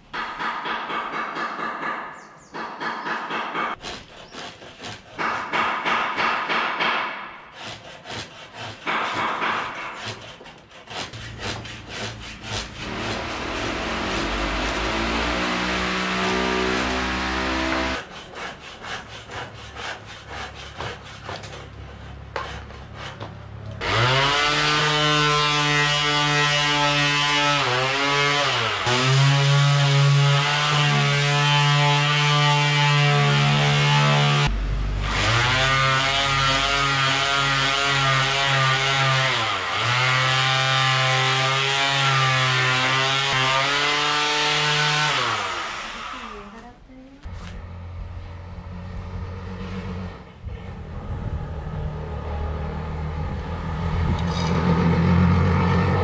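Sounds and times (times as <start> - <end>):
electric power sander on wood: 12.8 - 18.0, 23.8 - 46.4.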